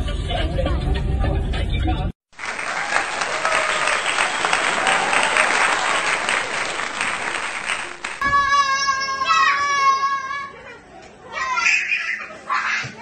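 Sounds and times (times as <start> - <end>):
crowd applauding: 2.3 - 8.2
child's high voice: 8.2 - 13.0.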